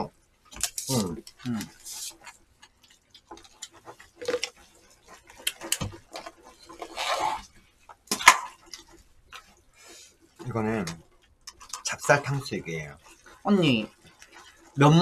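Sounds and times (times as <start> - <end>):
rustling: 0.4 - 15.0
chopsticks scraping plastic bowls: 0.6 - 7.5.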